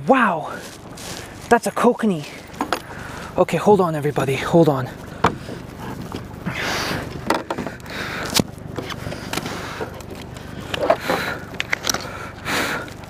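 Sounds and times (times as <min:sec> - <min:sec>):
clicks and knocks on kayak: 0:07.2 - 0:12.1.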